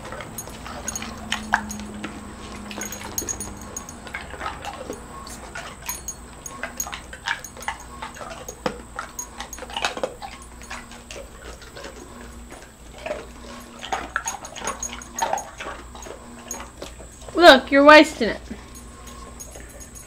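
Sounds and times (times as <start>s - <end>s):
dog crunching ice cubes: 0.0s - 17.4s.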